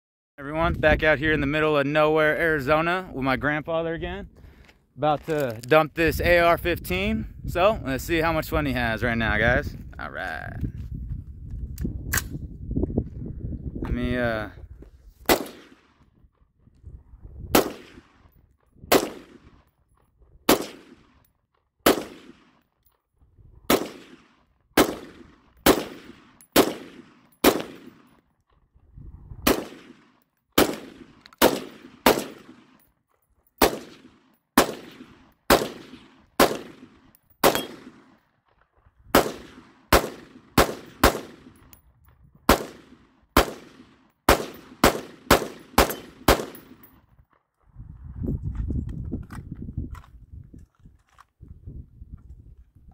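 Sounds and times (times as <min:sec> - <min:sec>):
rifle gunshots: 0:15.3 - 0:16.0, 0:17.5 - 0:18.3, 0:18.9 - 0:19.6, 0:20.5 - 0:21.2, 0:21.8 - 0:22.6, 0:23.7 - 0:28.2, 0:29.4 - 0:32.8, 0:33.6 - 0:38.2, 0:39.1 - 0:41.7, 0:42.5 - 0:46.9.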